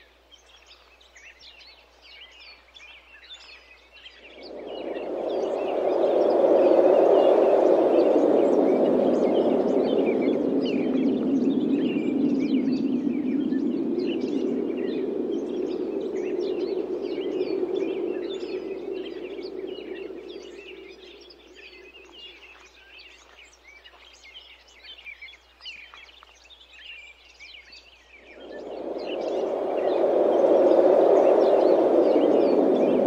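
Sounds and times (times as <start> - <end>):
small birds chirping: 0.0 - 33.0
wind blowing in gusts: 4.0 - 23.8, 28.1 - 33.0.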